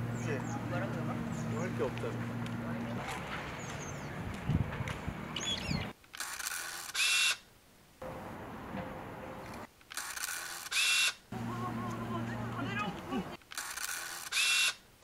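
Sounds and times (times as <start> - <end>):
faint outdoor ambience: 0.0 - 15.0
camera shutter clicks: 6.1 - 7.4, 9.8 - 11.2, 13.4 - 14.8.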